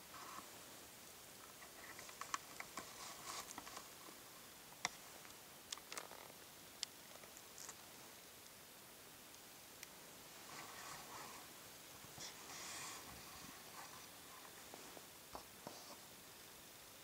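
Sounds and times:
faint rustling: 1.4s - 8.2s, 10.0s - 16.2s.

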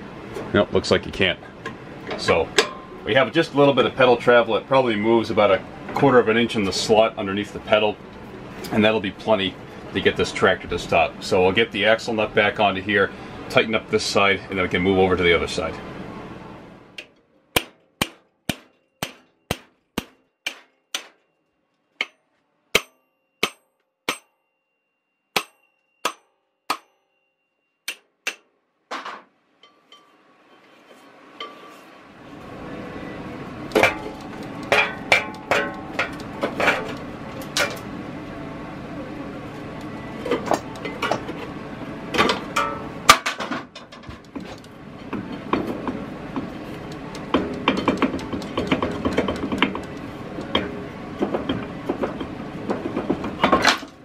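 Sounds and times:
metal knocks and clanks: 33.7s - 37.9s.

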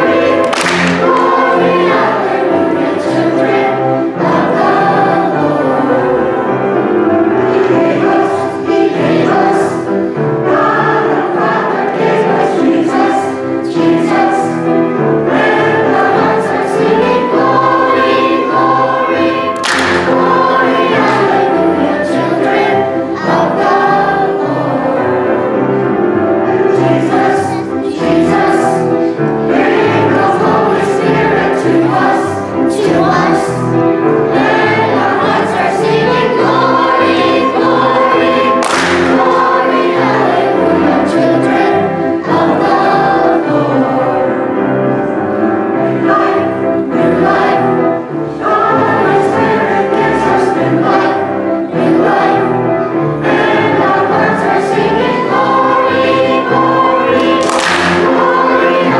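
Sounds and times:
children singing a hymn: 0.0s - 58.9s
instrumental accompaniment: 0.0s - 58.9s
sharp clap: 0.2s - 1.6s, 19.5s - 20.4s, 38.6s - 39.5s, 57.2s - 58.4s.

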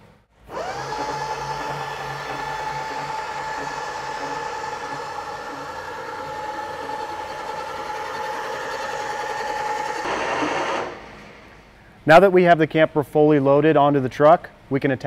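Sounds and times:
electric jack motors whining: 0.4s - 11.3s.

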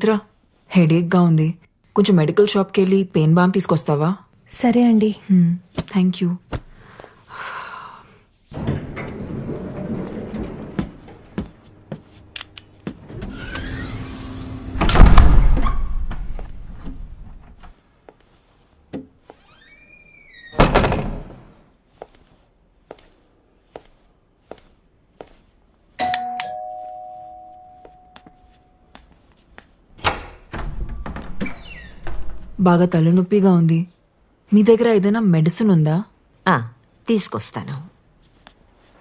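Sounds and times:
door clunking: 8.5s - 12.0s, 12.7s - 17.7s, 20.4s - 21.6s, 30.0s - 32.6s
footsteps on hard floor: 9.8s - 13.2s, 21.9s - 25.6s, 26.8s - 29.9s
doorbell chime: 26.0s - 28.8s.

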